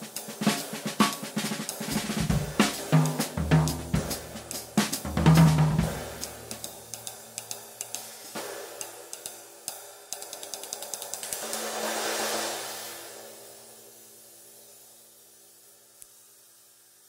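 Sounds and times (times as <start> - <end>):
drum kit fill: 0.0 - 13.8
ride cymbal strokes: 0.0 - 17.0.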